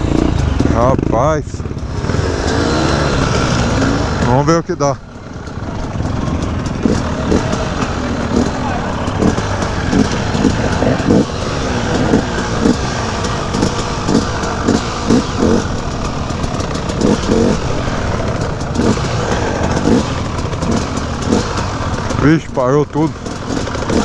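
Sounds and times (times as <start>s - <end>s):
dirt bike engine revving: 0.0s - 24.0s.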